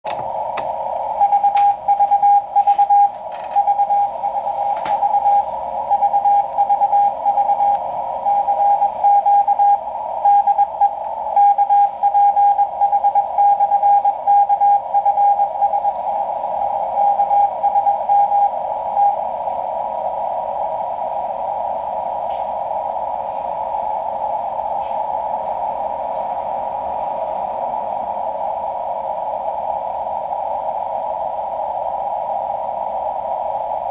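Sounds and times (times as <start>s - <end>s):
morse code tone: 0.0s - 19.3s
radio static hiss: 0.0s - 33.9s.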